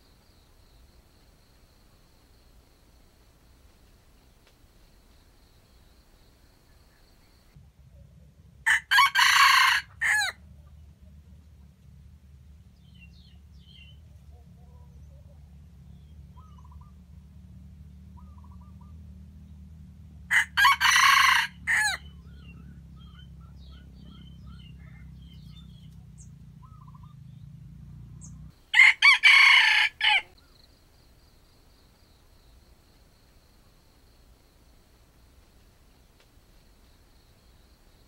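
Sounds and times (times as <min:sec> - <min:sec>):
rooster crowing: 0:08.7 - 0:10.4, 0:20.3 - 0:22.5, 0:28.7 - 0:30.4.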